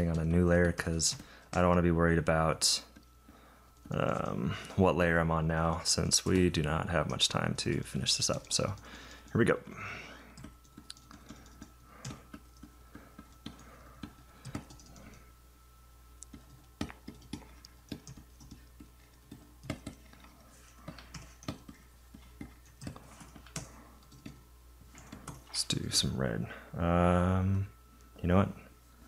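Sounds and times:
faint steady hum: 0.0s - 29.0s
computer keyboard clicks: 13.4s - 15.2s, 16.2s - 20.3s, 20.9s - 21.8s, 22.4s - 25.4s.

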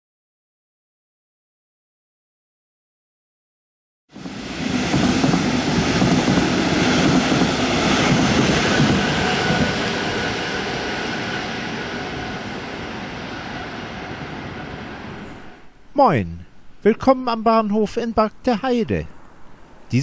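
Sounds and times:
train passing with wheel noise: 4.1s - 15.7s.

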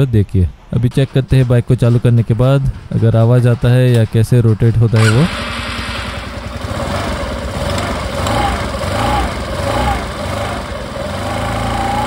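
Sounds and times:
scooter engine idling: 5.0s - 12.0s.

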